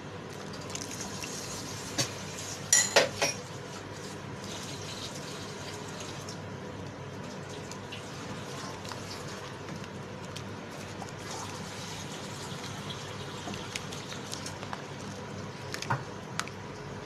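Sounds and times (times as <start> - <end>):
utensils clinking against pot: 2.7 - 3.4
simmering pot hiss: 7.2 - 15.6.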